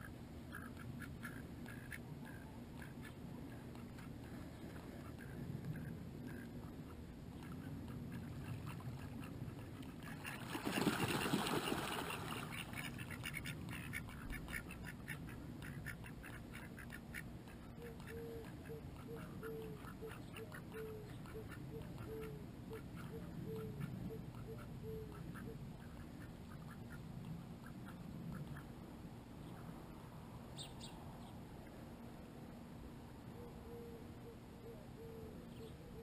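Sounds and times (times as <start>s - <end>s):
ducks quacking: 0.0s - 28.7s.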